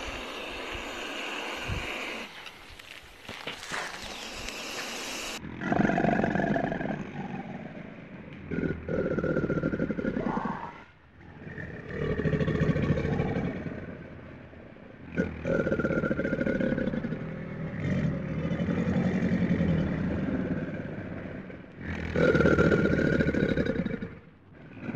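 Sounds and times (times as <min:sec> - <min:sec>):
alligator bellowing: 0:04.1 - 0:24.9.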